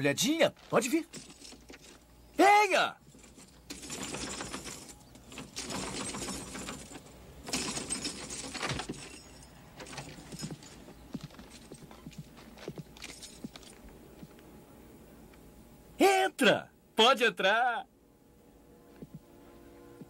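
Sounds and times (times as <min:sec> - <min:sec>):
keys jangling in a lock: 0:01.1 - 0:02.0, 0:03.0 - 0:10.8, 0:13.0 - 0:13.8.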